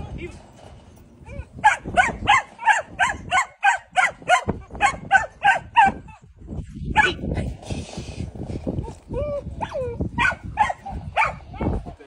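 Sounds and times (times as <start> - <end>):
puppy barking: 1.6 - 6.0, 9.6 - 11.7.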